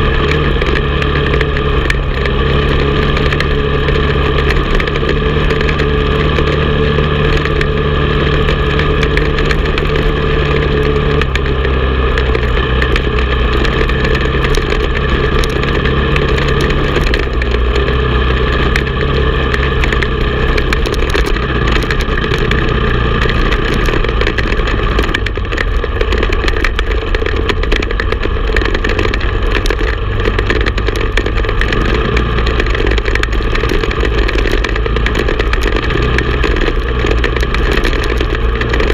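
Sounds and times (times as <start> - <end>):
atv engine running: 0.0 - 38.9.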